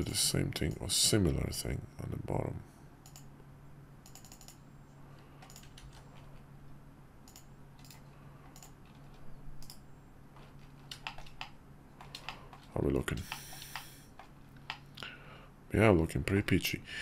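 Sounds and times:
steady low hum: 0:00.0 - 0:17.0
computer keyboard clicks: 0:03.0 - 0:03.3, 0:04.0 - 0:04.6, 0:05.4 - 0:06.3, 0:07.3 - 0:09.8, 0:10.4 - 0:14.9.

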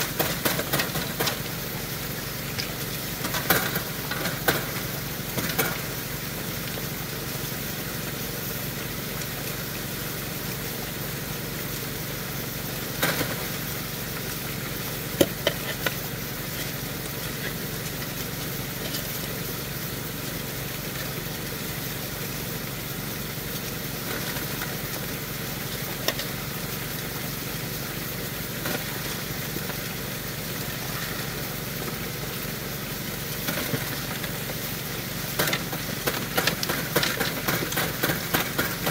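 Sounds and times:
rocks clattering into hopper: 0:00.0 - 0:01.5, 0:33.4 - 0:34.6, 0:35.4 - 0:38.9
water rushing through sluice box: 0:00.0 - 0:38.9.

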